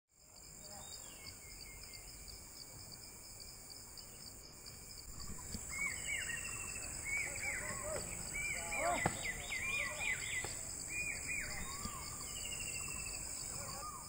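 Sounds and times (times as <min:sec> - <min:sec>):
high-pitched insect drone: 0:00.2 - 0:14.0
birds chirping: 0:05.0 - 0:14.0.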